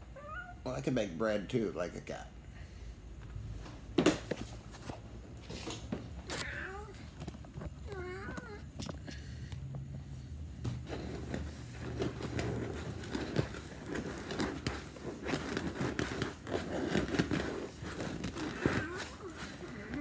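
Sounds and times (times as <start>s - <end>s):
crackling and rustling: 3.3s - 20.0s
person imitating a cat: 6.3s - 7.0s, 18.5s - 20.0s.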